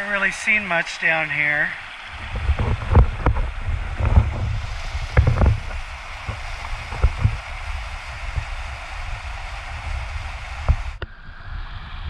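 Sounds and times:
creek water rushing over boulders: 0:00.0 - 0:11.2
low microphone rumble: 0:02.0 - 0:12.0.

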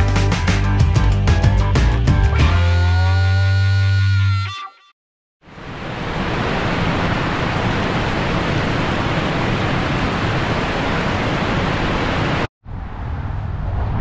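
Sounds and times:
waterfall rushing: 0:05.5 - 0:12.5.

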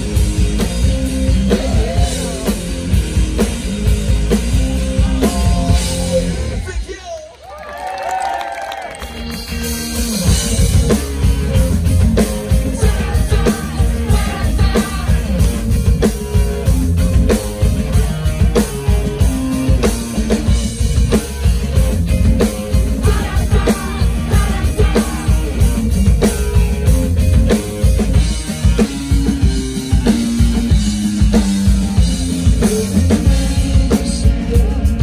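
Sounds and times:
drum kit beat: 0:00.0 - 0:06.9, 0:09.0 - 0:35.0
rock band playing: 0:00.0 - 0:07.2, 0:08.1 - 0:35.0.

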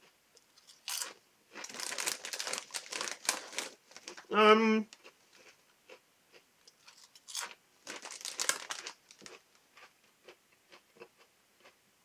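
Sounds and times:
crunching potato crisps: 0:00.6 - 0:04.3, 0:06.8 - 0:10.8.

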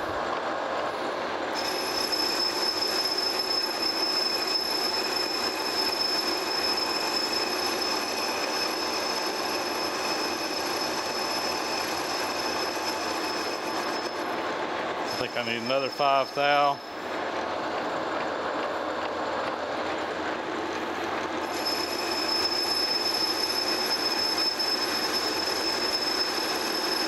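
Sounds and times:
lathe spindle running: 0:00.0 - 0:27.0
high-pitched cutting squeal: 0:01.5 - 0:14.4, 0:15.1 - 0:17.0, 0:21.4 - 0:27.0.

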